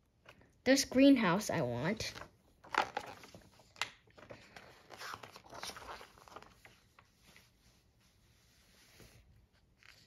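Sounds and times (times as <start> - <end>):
paper pages rustling: 2.1 - 10.0.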